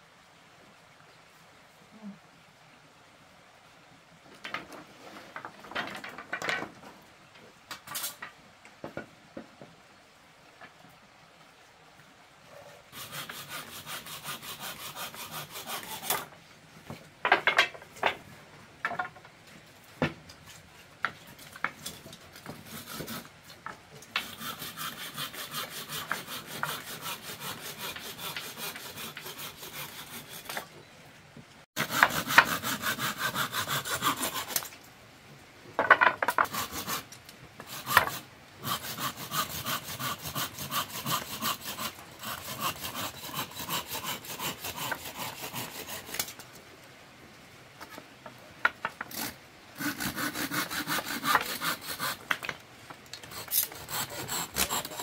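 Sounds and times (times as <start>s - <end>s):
hand saw cutting: 13.0s - 16.3s, 22.4s - 23.3s, 24.2s - 30.7s, 31.8s - 34.7s, 36.3s - 46.4s, 49.1s - 52.4s, 53.2s - 55.0s.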